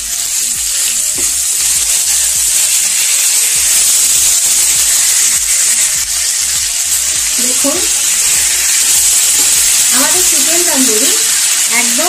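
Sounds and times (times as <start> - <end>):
chicken sizzling in pan: 0.0 - 12.0.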